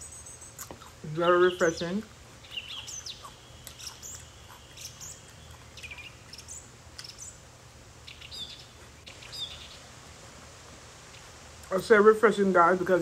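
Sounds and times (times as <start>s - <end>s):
low steady hum: 0.0s - 13.0s
soft chewing: 0.4s - 1.1s, 2.4s - 7.3s.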